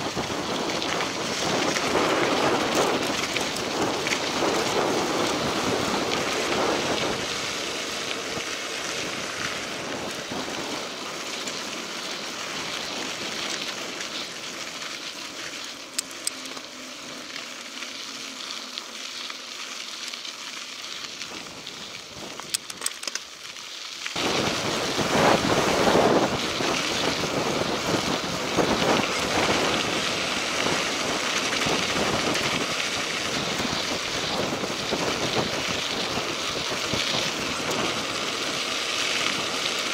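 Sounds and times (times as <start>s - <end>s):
wind on microphone: 0.0s - 10.9s, 24.2s - 38.6s
bike tyre noise on dirt: 0.0s - 39.9s
sharp clicks: 22.5s - 23.3s.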